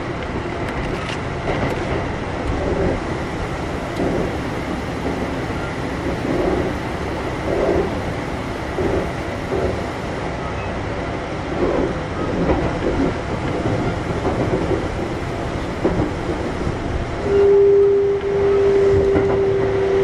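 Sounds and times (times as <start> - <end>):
train rumble: 0.0 - 20.0
wheels knocking and clattering: 11.6 - 16.5
loud steady whine: 17.2 - 20.0.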